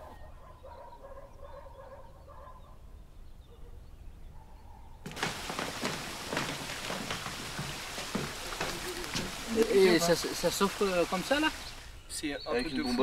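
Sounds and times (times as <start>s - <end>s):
footsteps on wooden planks: 5.1s - 11.8s.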